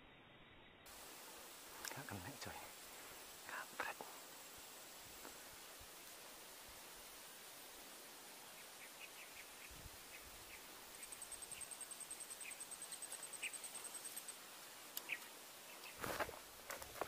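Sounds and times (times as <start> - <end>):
rustles: 0.8 - 17.0
faint scattered chirps: 8.5 - 14.4, 15.0 - 16.2.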